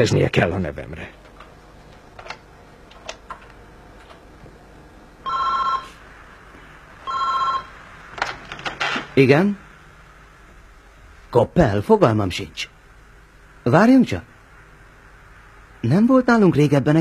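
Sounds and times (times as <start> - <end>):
desk telephone ringing: 5.2 - 6.0, 7.0 - 7.8.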